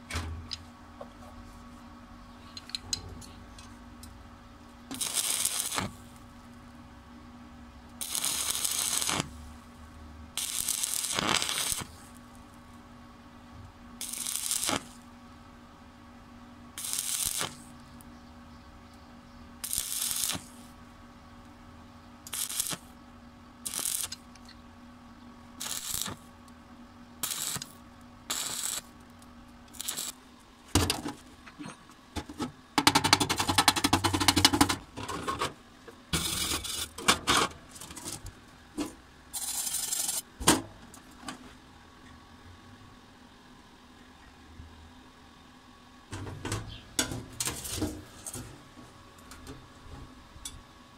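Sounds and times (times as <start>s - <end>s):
low steady hum: 0.0s - 50.9s
welding arc crackling: 4.9s - 6.3s, 8.0s - 9.4s, 10.4s - 12.2s, 14.0s - 15.0s, 16.8s - 17.7s, 19.6s - 20.7s, 22.2s - 22.9s, 23.6s - 24.5s, 25.6s - 26.3s, 27.2s - 30.2s, 36.2s - 37.0s, 39.3s - 40.3s, 47.1s - 48.5s
wire brush scratching metal: 23.7s - 24.2s, 25.6s - 26.2s, 28.3s - 28.9s, 36.2s - 38.3s, 39.4s - 40.3s, 47.3s - 48.5s.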